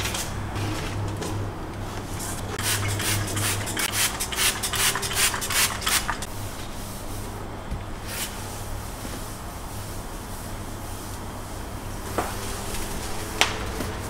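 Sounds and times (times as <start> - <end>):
low steady hum: 0.0 - 14.0
cloth scrubbing stone countertop: 0.6 - 7.4.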